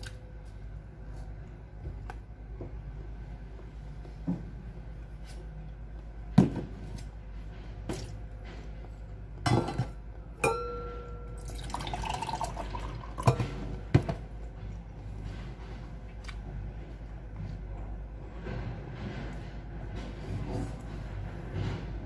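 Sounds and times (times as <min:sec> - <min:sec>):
steady low hum: 0:00.0 - 0:22.0
tableware clinking: 0:09.5 - 0:12.6.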